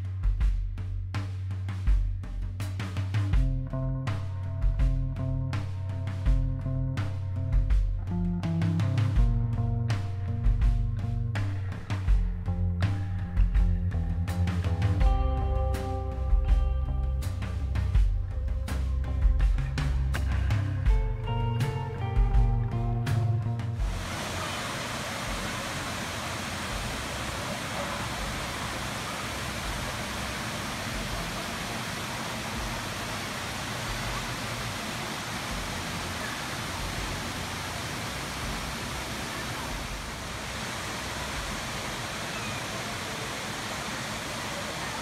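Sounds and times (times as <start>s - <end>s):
music: 0.0s - 41.6s
waterfall and rapids rushing: 23.8s - 45.0s.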